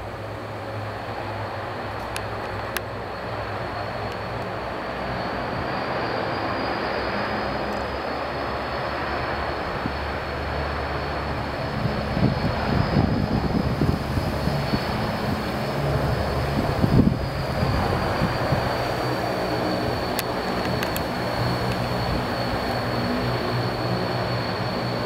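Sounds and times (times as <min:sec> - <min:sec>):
propeller drone: 0:00.0 - 0:25.0
turbine whine: 0:00.0 - 0:25.0
gusty low rumbles: 0:09.0 - 0:25.0.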